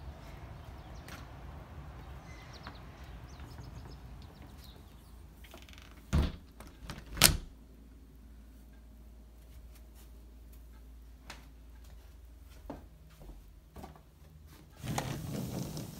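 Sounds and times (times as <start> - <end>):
door shutting knocks: 6.1 - 7.5.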